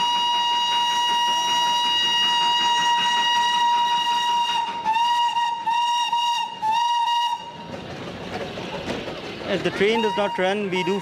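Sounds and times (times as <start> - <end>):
steam whistle blast and toots: 0.0 - 7.6
steam hissing: 0.0 - 7.7.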